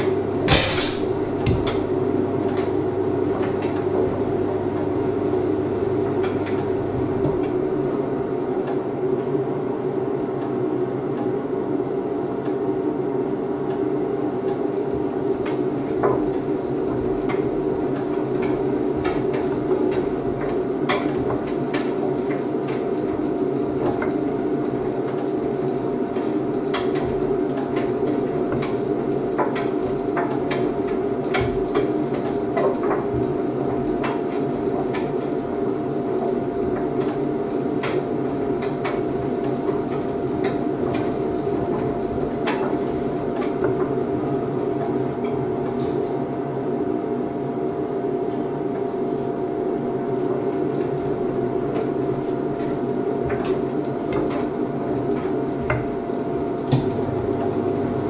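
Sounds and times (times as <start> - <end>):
washer-dryer humming with whine: 0.0 - 58.0
load knocking against drum: 0.4 - 1.8.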